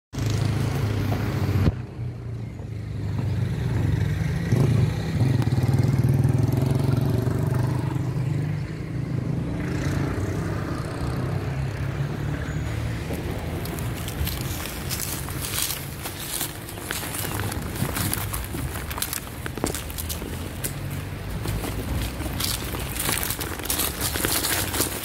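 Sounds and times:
motorcycles passing by: 0:00.2 - 0:25.0.

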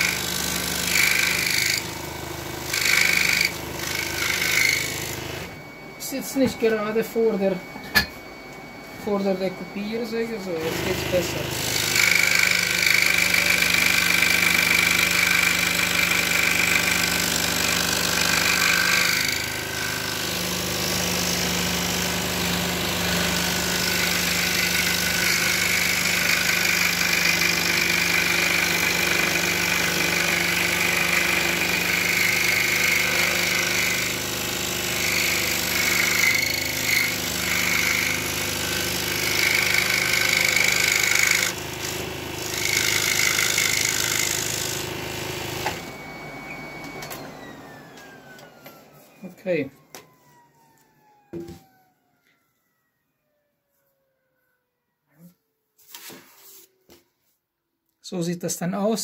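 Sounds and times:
scroll saw cutting plywood: 0:00.0 - 0:05.8, 0:10.5 - 0:48.8.

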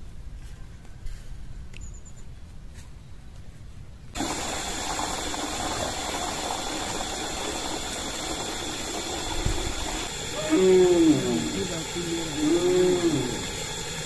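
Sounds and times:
running water rushing: 0:04.2 - 0:14.0.

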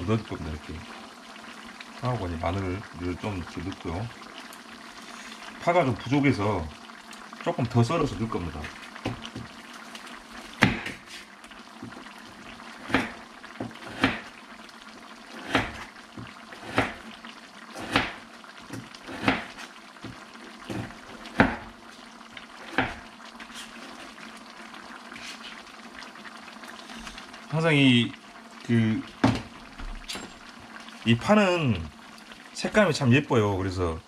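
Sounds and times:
pan bubbling: 0:00.0 - 0:34.0
knife chopping on cutting board: 0:12.9 - 0:14.2, 0:15.4 - 0:15.8, 0:16.6 - 0:17.0, 0:17.8 - 0:18.2, 0:19.1 - 0:19.6, 0:20.7 - 0:21.7, 0:22.7 - 0:23.0.

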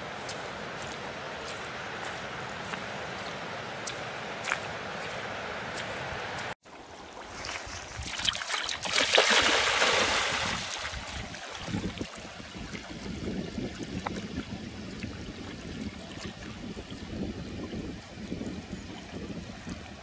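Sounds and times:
water splashing around swimming dog: 0:07.2 - 0:13.0.

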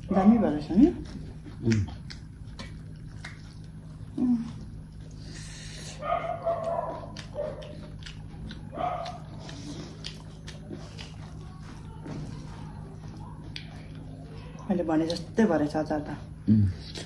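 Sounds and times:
steady low hum: 0:00.0 - 0:17.0
dog yipping: 0:06.0 - 0:07.8, 0:08.7 - 0:09.3.

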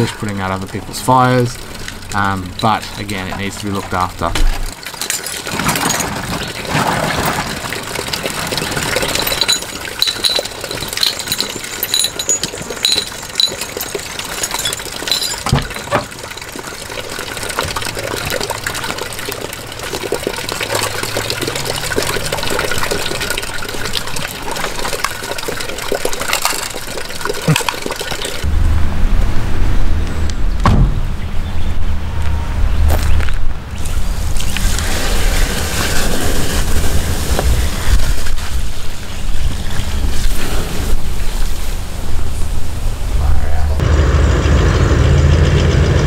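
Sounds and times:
water running and splashing: 0:00.0 - 0:28.5
clinks of stones and metal: 0:01.8 - 0:07.6, 0:08.6 - 0:16.8, 0:25.9 - 0:28.4.

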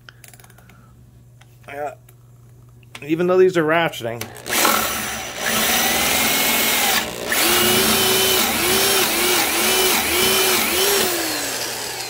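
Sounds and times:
power drill boring into wood: 0:04.4 - 0:12.0.

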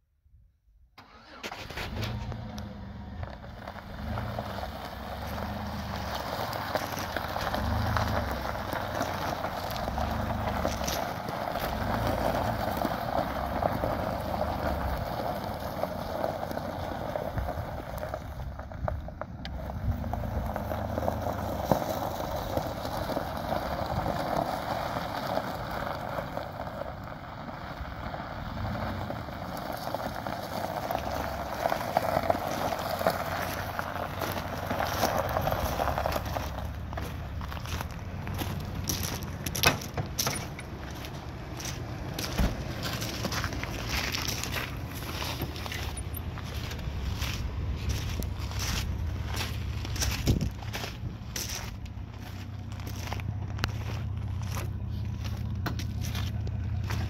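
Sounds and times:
wind buffeting microphone: 0:49.7 - 0:51.4.

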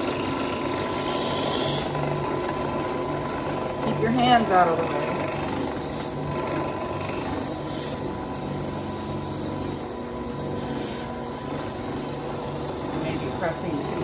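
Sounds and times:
drill press motor hum: 0:00.0 - 0:14.0
sanding ball scrubbing gourd: 0:07.3 - 0:14.0.

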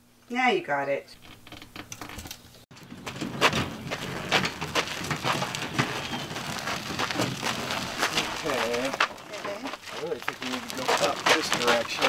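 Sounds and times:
footsteps: 0:02.7 - 0:12.0
hand truck wheels on gravel: 0:02.7 - 0:12.0.

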